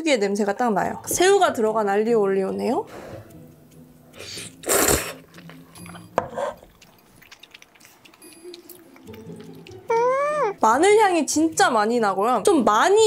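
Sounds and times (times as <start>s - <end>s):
person slurping noodles: 4.2s - 5.6s
chewing: 4.2s - 10.6s.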